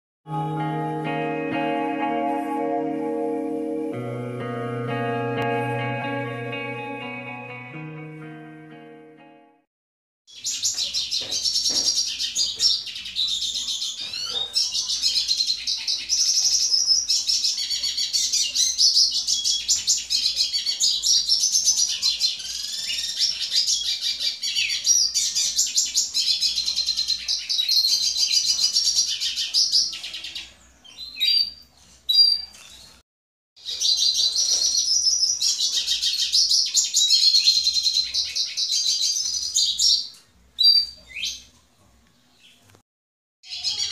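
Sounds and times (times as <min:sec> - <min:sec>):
bird chirps: 0:10.3 - 0:33.0
bird twittering song: 0:10.3 - 0:33.0, 0:33.6 - 0:41.6.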